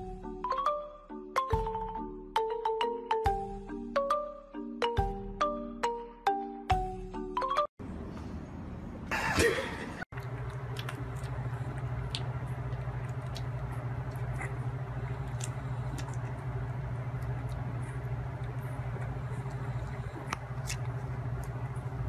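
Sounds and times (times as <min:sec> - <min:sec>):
steady low hum: 0:07.8 - 0:22.0.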